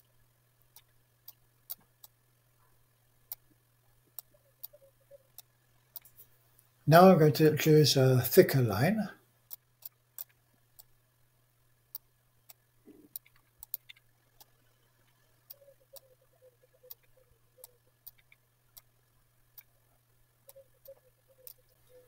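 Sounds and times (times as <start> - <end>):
faint steady hum: 0.0 - 22.0
computer mouse clicks: 0.7 - 2.2, 3.3 - 3.5, 4.1 - 6.2, 9.5 - 10.9, 11.9 - 18.9, 20.4 - 22.0.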